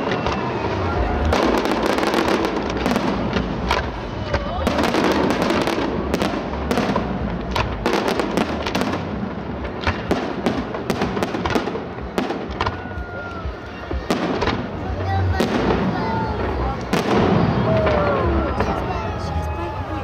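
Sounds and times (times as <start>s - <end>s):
firework whistle: 0.0s - 6.3s, 16.9s - 19.2s
fireworks bursts and crackles: 0.0s - 20.0s.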